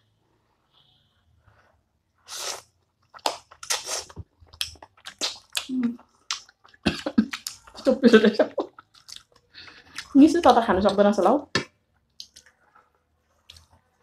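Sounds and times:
noodle slurping: 2.2 - 7.6
lip smacks: 2.3 - 7.8
chewing: 2.6 - 7.9, 8.5 - 10.2, 12.1 - 14.0.

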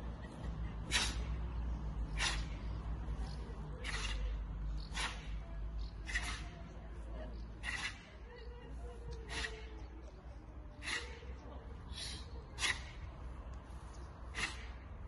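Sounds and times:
sharp hissing breaths: 0.8 - 3.2, 3.8 - 5.4, 7.6 - 8.1, 10.7 - 15.0.

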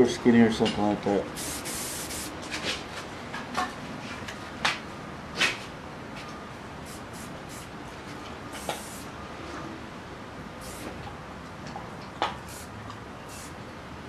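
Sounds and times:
spray can hissing: 1.3 - 2.3, 6.9 - 7.7, 8.6 - 9.1, 10.6 - 10.9, 12.4 - 12.7, 13.3 - 13.6.

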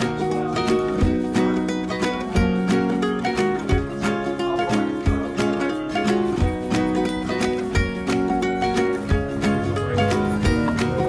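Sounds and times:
low regular beat: 0.0 - 11.0
plucked-string instruments: 0.0 - 11.0.

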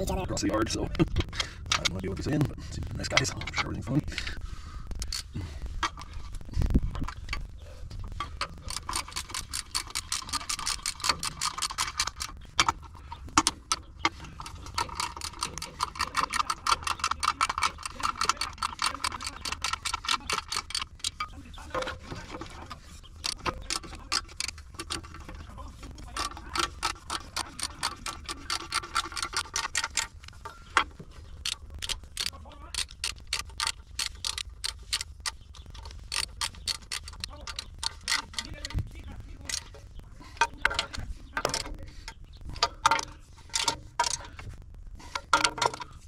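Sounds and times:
socket ratchet clicking: 8.4 - 21.3, 22.1 - 25.4, 26.1 - 38.8.

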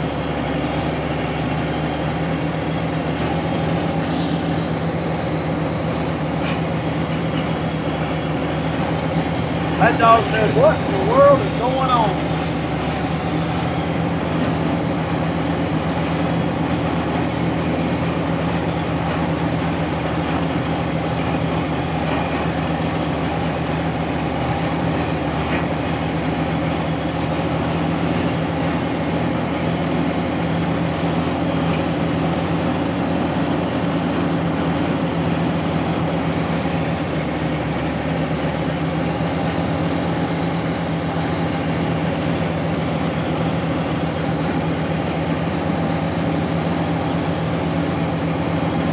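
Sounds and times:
heavy diesel engine running: 0.0 - 48.9.

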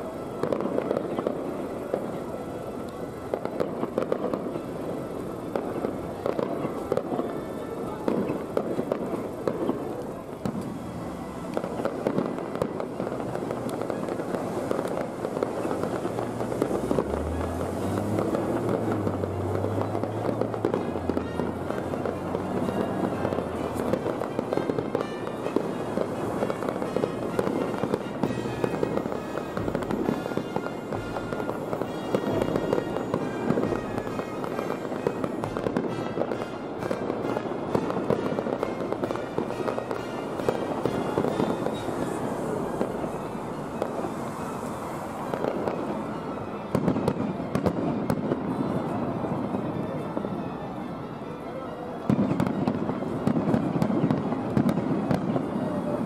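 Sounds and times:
fireworks bursting and crackling: 0.0 - 56.0.

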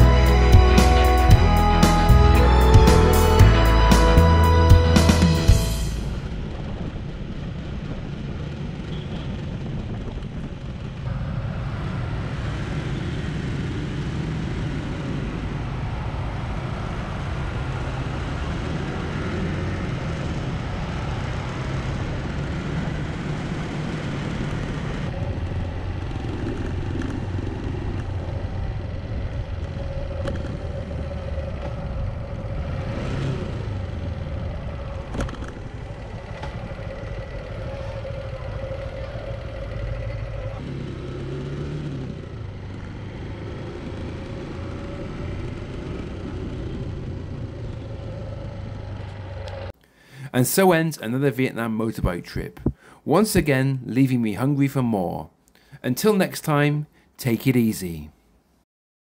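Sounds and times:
scooter engines: 0.0 - 49.8
wind and road noise: 0.0 - 53.7
motorbike engine running: 19.4 - 49.7.

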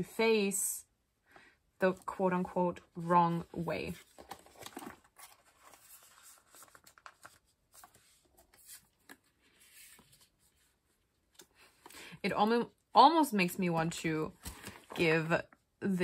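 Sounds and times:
rustling of cards in plastic sleeve: 3.0 - 11.9.

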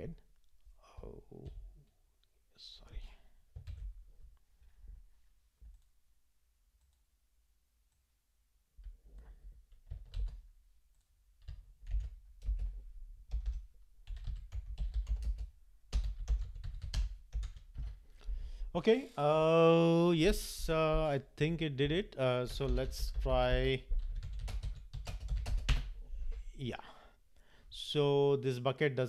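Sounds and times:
typing on computer keyboard: 3.6 - 3.9, 8.8 - 10.4, 11.0 - 18.0, 22.6 - 25.9.

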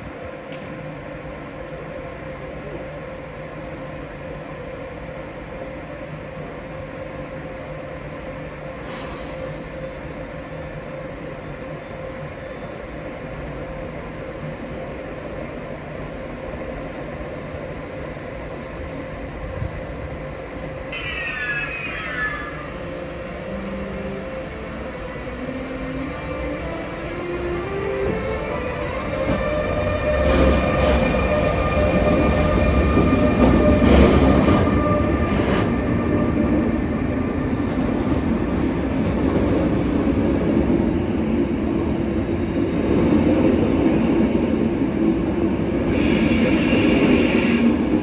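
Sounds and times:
electric locomotive humming: 0.0 - 48.0
short hiss: 8.8 - 9.8.

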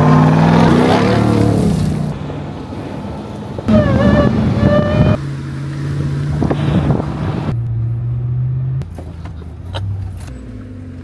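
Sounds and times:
truck engine and road noise: 0.0 - 11.0.

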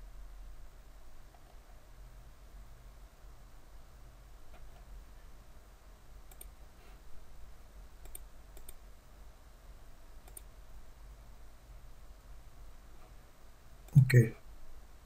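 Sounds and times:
faint low hum: 0.0 - 15.0
computer mouse clicking: 6.3 - 6.6, 8.0 - 8.8, 10.2 - 10.5.

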